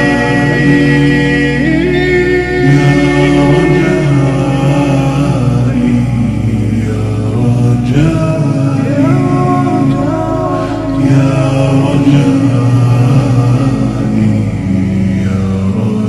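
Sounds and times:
male voices chanting in harmony: 0:00.0 - 0:16.0.

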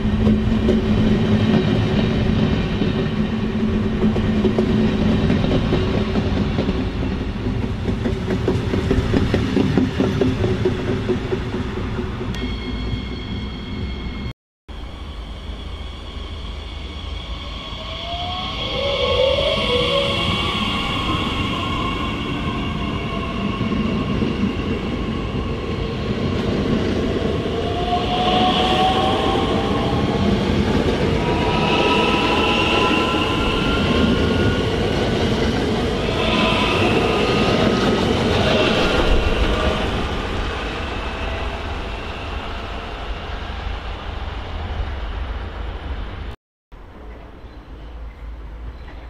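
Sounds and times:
wheels rumbling on rails: 0:00.0 - 0:13.2.

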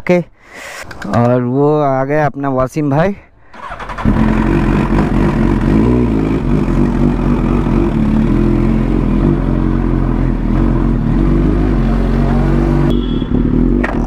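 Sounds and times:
motorcycle engine running at low revs: 0:04.0 - 0:14.0.

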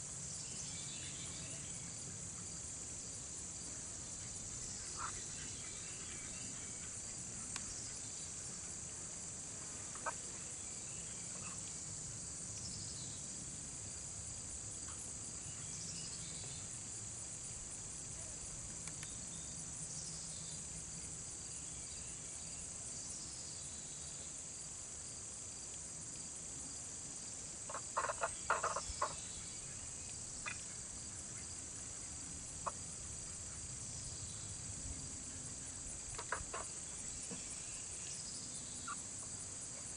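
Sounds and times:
insects chirring: 0:00.0 - 0:39.9
ducks quacking: 0:27.7 - 0:29.2, 0:36.2 - 0:36.7.

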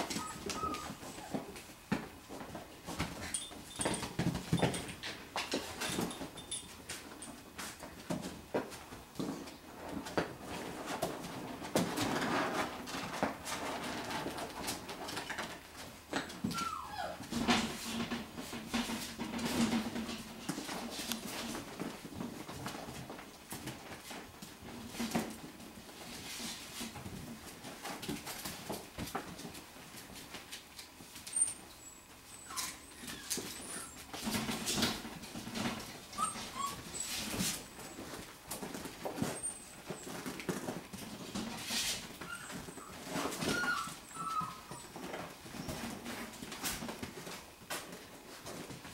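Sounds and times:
puppies whimpering and cooing: 0:00.0 - 0:01.6, 0:16.2 - 0:17.8, 0:31.3 - 0:40.7, 0:41.3 - 0:46.2
small paws scuffling: 0:00.0 - 0:48.9.

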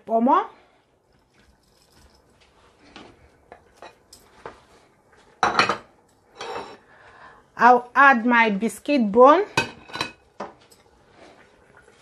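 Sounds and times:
kitchenware clinking against metal pot: 0:09.5 - 0:10.8.

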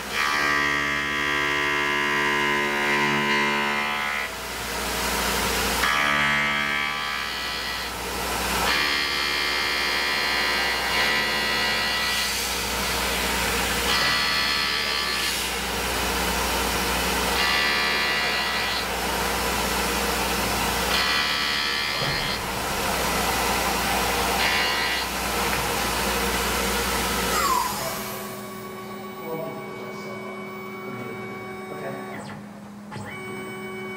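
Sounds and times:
mill spindle running: 0:01.4 - 0:33.9
high-pitched ringing cutting noise: 0:17.3 - 0:32.4.

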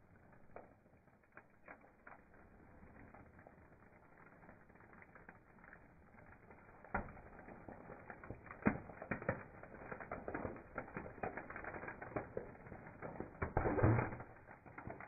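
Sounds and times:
rubber toys crackling and snapping: 0:04.5 - 0:15.0.

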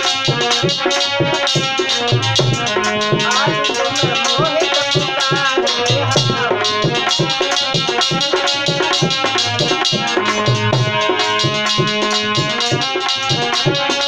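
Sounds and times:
harmonium sustained notes: 0:00.0 - 0:13.8
hand drum beat: 0:00.0 - 0:14.0
man singing: 0:02.9 - 0:07.5.

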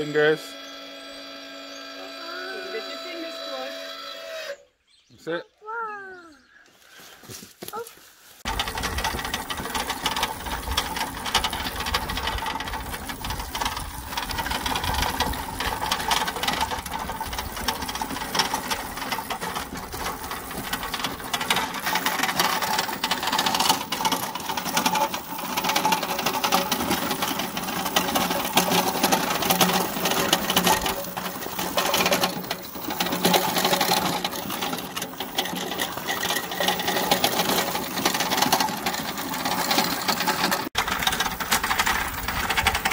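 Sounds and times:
electric motor whirring: 0:00.0 - 0:04.7.

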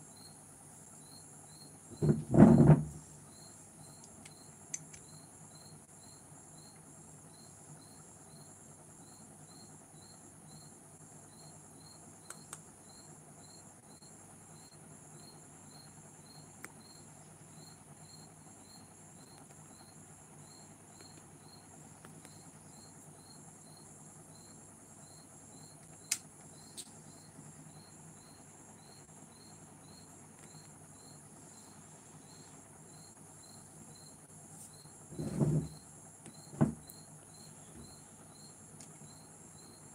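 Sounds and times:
faint insect chirping: 0:00.0 - 0:39.9
steady low hum: 0:00.0 - 0:39.9
sharp clicks: 0:25.8 - 0:27.0.

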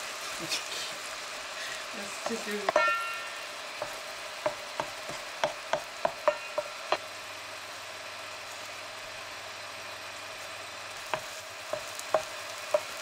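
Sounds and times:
vegetables sizzling in frying pan: 0:00.0 - 0:13.0
wooden spatula tapping pan: 0:02.2 - 0:07.0, 0:11.0 - 0:13.0.

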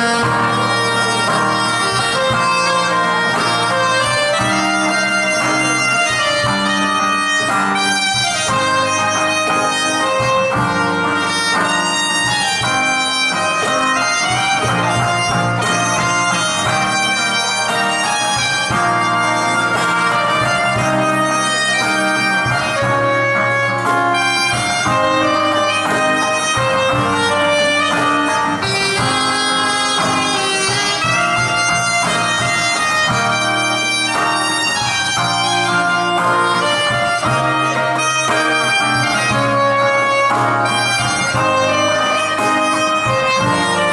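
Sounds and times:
soprano saxophone melody: 0:00.0 - 0:43.9
strummed acoustic guitar: 0:00.0 - 0:43.9.

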